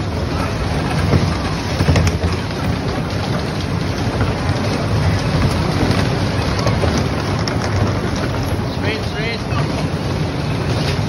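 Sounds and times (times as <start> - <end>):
bumper car rumble and hiss: 0.0 - 11.0.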